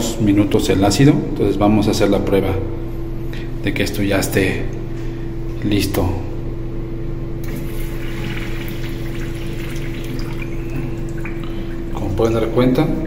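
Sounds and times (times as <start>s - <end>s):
water draining down urinal: 7.4s - 12.6s.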